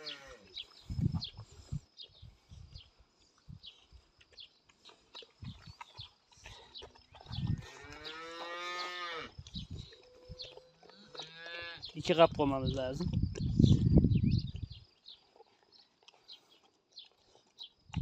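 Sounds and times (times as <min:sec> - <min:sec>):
cow mooing: 0:07.8 - 0:09.3.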